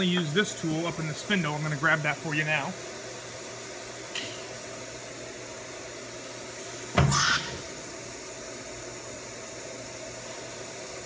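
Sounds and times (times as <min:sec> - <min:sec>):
steady machine hum: 0:00.0 - 0:11.0
compressed air hiss: 0:06.5 - 0:08.4.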